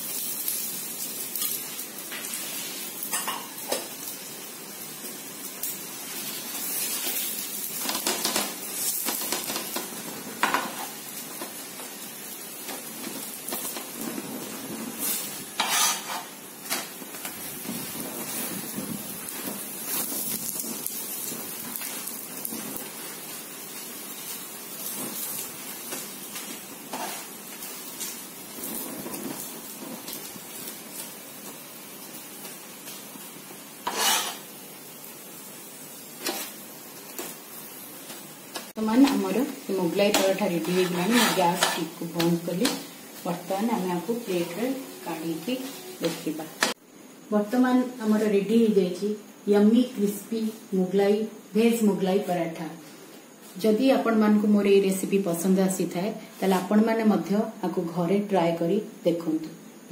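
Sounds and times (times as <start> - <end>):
oil sizzling in a pan: 0.0 - 59.9
spatula scraping and knocking on pan: 7.8 - 11.6, 12.7 - 21.8, 26.9 - 27.3, 33.8 - 34.5, 40.0 - 42.9.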